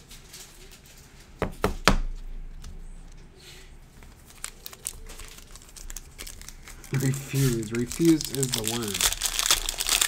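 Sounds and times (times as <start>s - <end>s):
foil wrapper crinkling: 3.9s - 10.0s.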